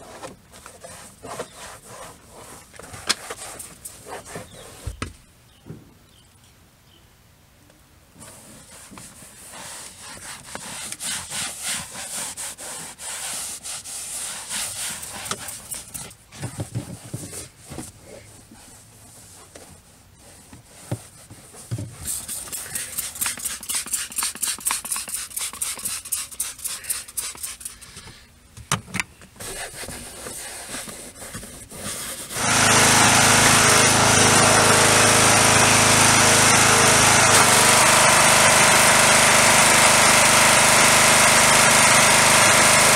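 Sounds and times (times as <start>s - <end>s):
towel rubbing leather seats: 8.2s - 16.2s, 29.4s - 34.7s
pressure washer spraying: 22.1s - 27.8s, 32.4s - 42.9s.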